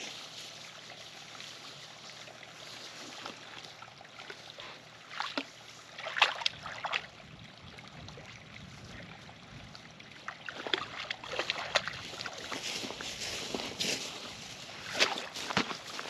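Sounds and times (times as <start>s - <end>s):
stream water trickling: 0.0s - 16.0s
short splashes and knocks: 5.1s - 7.1s, 10.2s - 14.2s, 14.8s - 16.0s.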